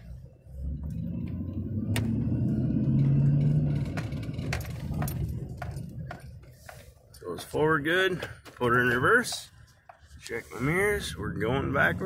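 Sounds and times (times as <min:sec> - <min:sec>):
pickup truck engine accelerating: 0:00.0 - 0:06.6.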